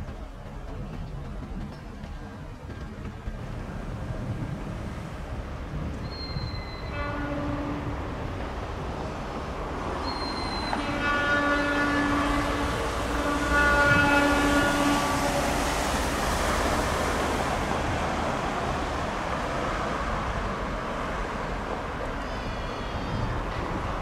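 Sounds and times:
train rumbling on rails: 0.0s - 24.0s
locomotive air horn blasts: 6.4s - 8.0s, 10.0s - 15.6s.

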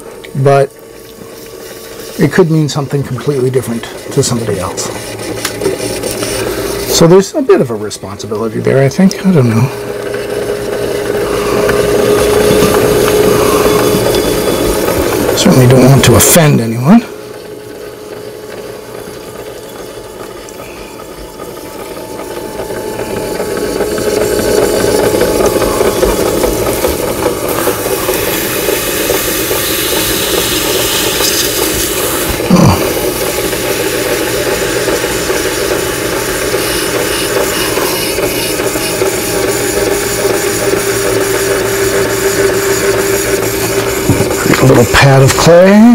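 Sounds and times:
potter's wheel motor whining: 0.0s - 45.9s
hands smoothing wet clay: 1.0s - 7.2s.

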